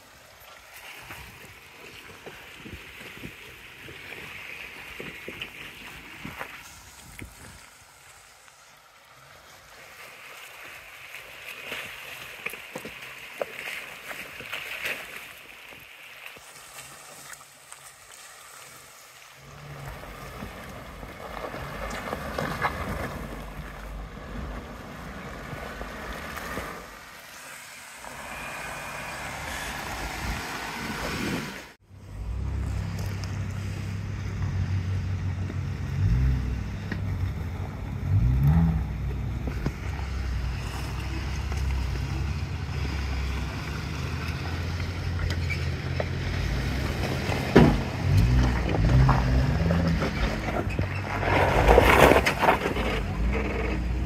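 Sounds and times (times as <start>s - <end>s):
wind hiss on microphone: 2.6s - 8.6s, 27.0s - 31.7s
car engine droning: 19.4s - 54.0s.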